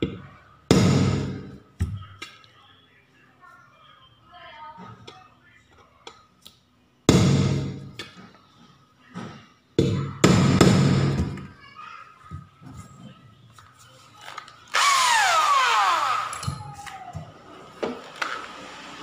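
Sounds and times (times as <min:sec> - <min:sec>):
electric drill running: 0:14.7 - 0:16.4.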